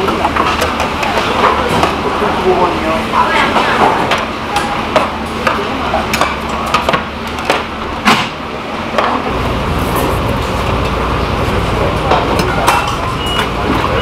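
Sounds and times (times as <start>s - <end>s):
metal bowls clinking on table: 12.4s - 13.9s.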